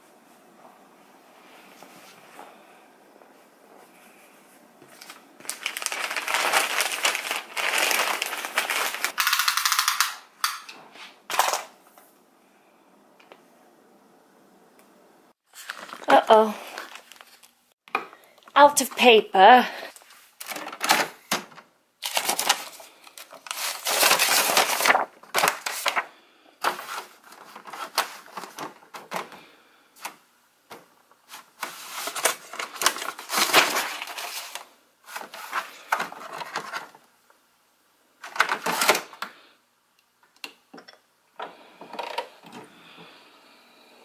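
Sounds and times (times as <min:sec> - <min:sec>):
paper rustling: 0:04.0 - 0:09.3, 0:15.5 - 0:17.5, 0:22.0 - 0:29.3, 0:31.3 - 0:36.9.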